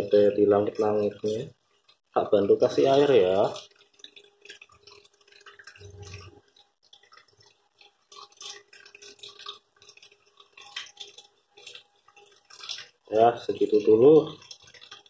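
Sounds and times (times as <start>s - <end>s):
water dripping and splashing: 0.0s - 15.0s.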